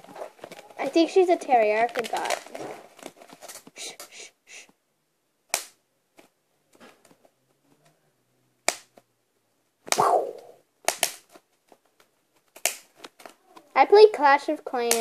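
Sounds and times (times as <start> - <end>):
plastic crinkling: 0.0 - 3.8
bubble wrap popping: 0.0 - 4.0, 9.8 - 13.6.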